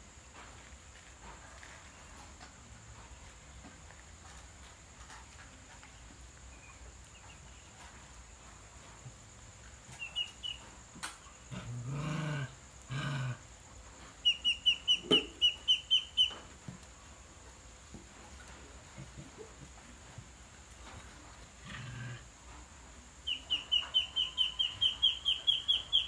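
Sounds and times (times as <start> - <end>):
ducklings peeping: 9.9 - 10.6, 14.2 - 16.5, 23.2 - 26.0.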